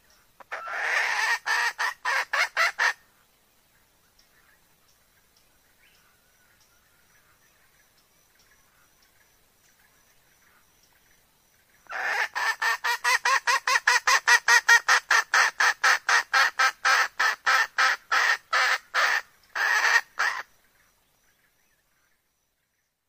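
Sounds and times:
hen clucking: 0:00.4 - 0:03.0, 0:11.9 - 0:20.4.

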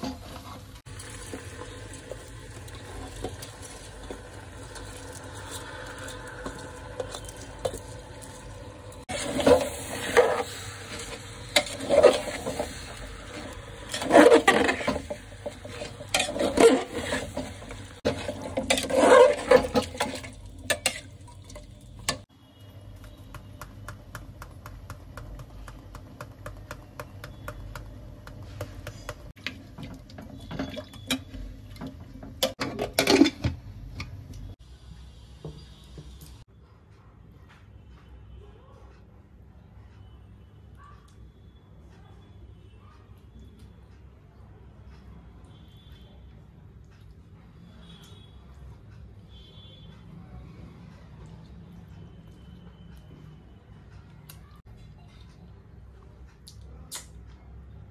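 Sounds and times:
metal ladle scraping pot: 0:02.6 - 0:22.3.

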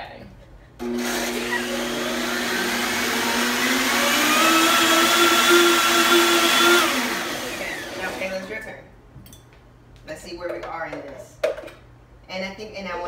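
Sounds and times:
blender running: 0:00.8 - 0:08.6.

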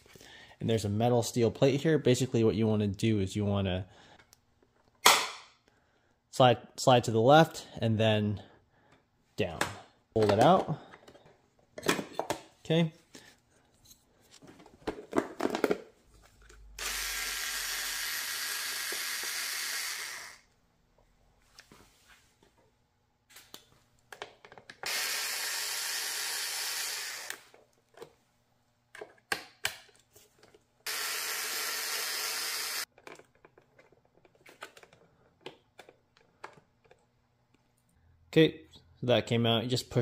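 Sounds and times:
handling clicks and knocks: 0:09.5 - 0:12.5
small power tool running: 0:16.8 - 0:20.4, 0:24.8 - 0:27.4, 0:30.9 - 0:32.9.

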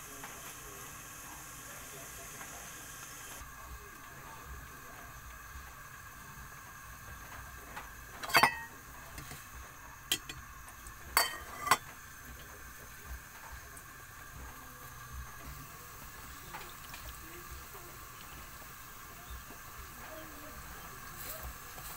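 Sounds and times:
ladle stirring in metal pot: 0:08.1 - 0:09.5, 0:10.1 - 0:10.4, 0:11.1 - 0:12.5
ladle clinking against pot: 0:08.2 - 0:09.3, 0:10.1 - 0:10.4, 0:11.2 - 0:11.9.

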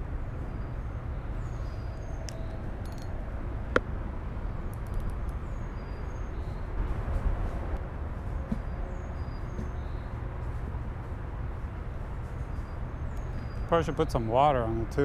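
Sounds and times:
sharp click: 0:02.2 - 0:03.1.

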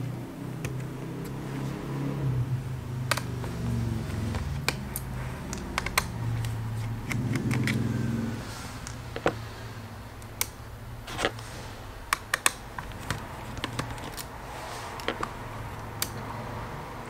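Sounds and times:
fingers clicking on laptop parts: 0:00.5 - 0:02.0, 0:03.0 - 0:08.0, 0:12.1 - 0:16.3.

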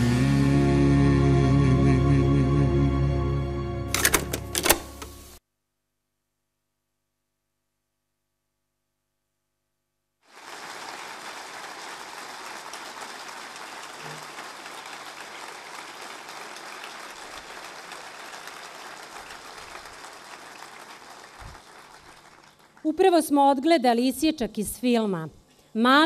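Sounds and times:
audience applauding: 0:10.3 - 0:23.0.

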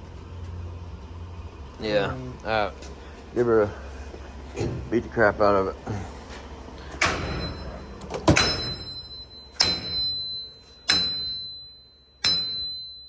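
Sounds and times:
hammer striking metal tool: 0:07.0 - 0:13.0.

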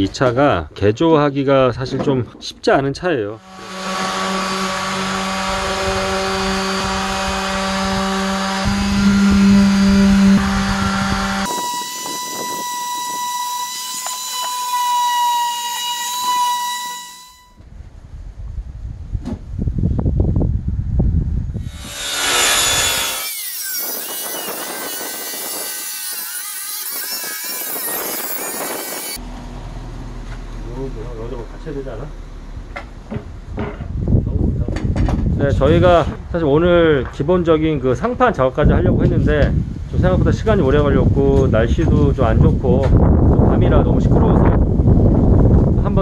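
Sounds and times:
power saw cutting plywood: 0:03.4 - 0:17.5, 0:21.6 - 0:29.2.

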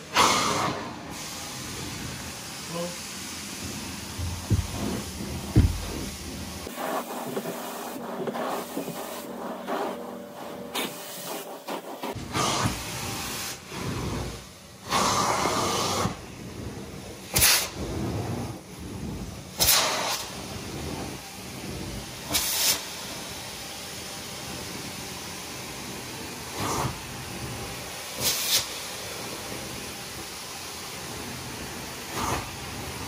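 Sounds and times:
spurts of spray: 0:00.0 - 0:16.2, 0:17.3 - 0:18.2, 0:19.5 - 0:21.0, 0:22.2 - 0:23.4, 0:26.4 - 0:27.3, 0:27.9 - 0:33.0
cleaning machine hissing: 0:00.0 - 0:33.0.

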